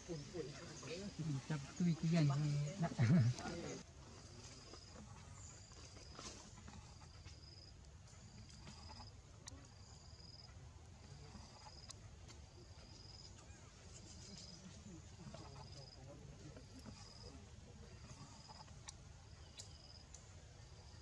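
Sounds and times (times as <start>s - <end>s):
faint clicks: 18.1s - 20.3s.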